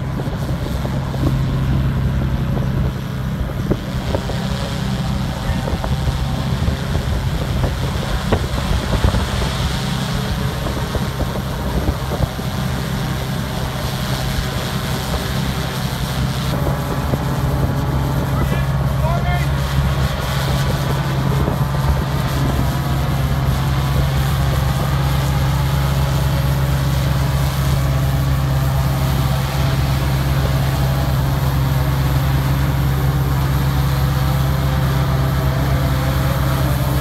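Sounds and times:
low machinery hum: 0.0s - 37.0s.

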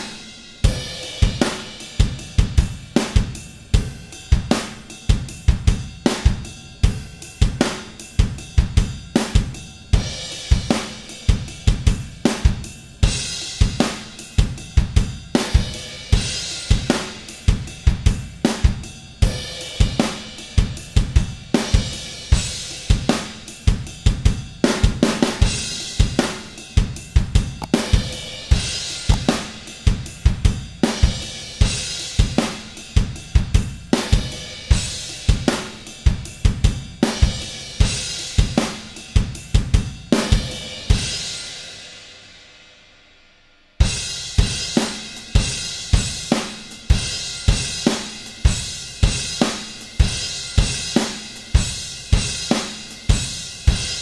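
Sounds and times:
drum beat: 27.6s - 29.6s.

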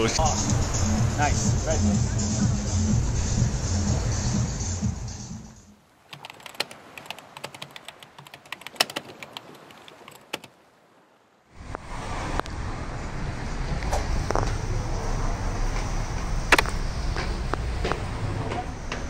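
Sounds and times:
street traffic noise: 0.0s - 5.7s, 11.6s - 19.0s
electronic music: 0.0s - 5.8s
keyboard typing clicks: 6.1s - 9.5s.

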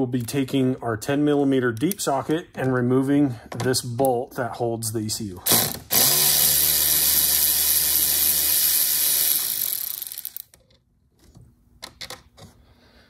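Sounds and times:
cordless electric ratchet running: 5.5s - 10.5s.

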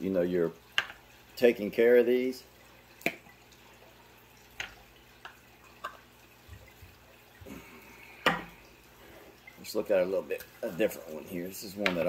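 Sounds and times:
liquid dripping: 0.0s - 12.0s.

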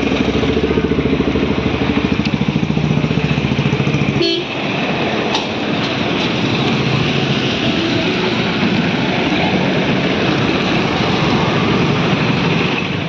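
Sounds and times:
vehicle engine idling: 0.0s - 4.4s.

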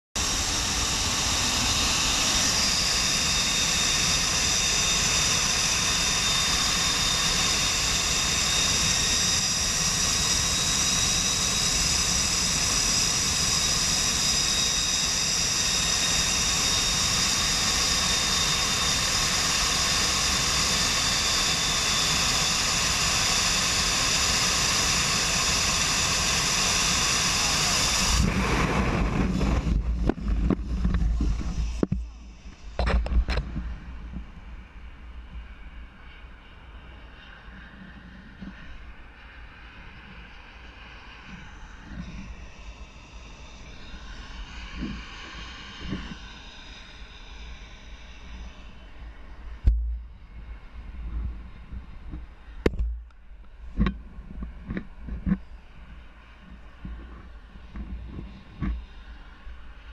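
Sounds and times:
high whining tones: 0.2s - 35.7s
jet engines rushing: 0.2s - 59.9s
wind buffeting microphone: 15.2s - 34.7s.

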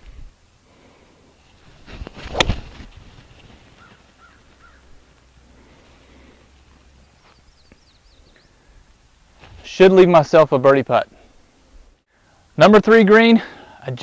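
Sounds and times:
golf club swish: 1.5s - 3.0s
faint bird calls: 3.3s - 9.0s.

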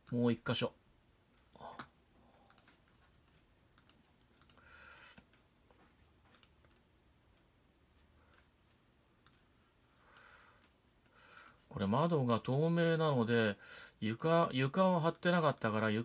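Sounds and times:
computer mouse clicks: 1.8s - 5.3s, 6.3s - 6.8s, 9.2s - 9.4s, 11.3s - 11.6s.

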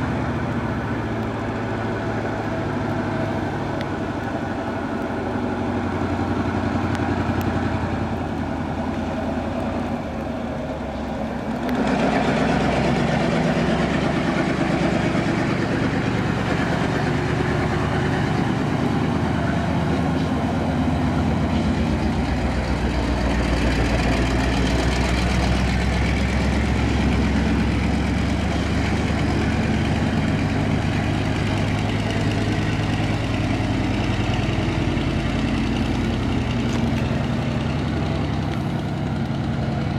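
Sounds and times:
diesel engine running: 0.0s - 39.9s
tyre hiss on wet pavement: 0.0s - 39.9s.

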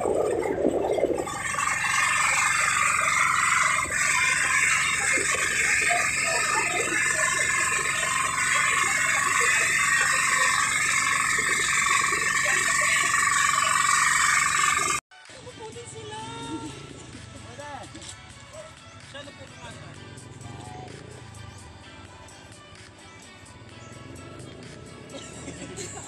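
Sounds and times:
boat motor running: 0.0s - 15.0s
water noise: 0.0s - 15.0s.

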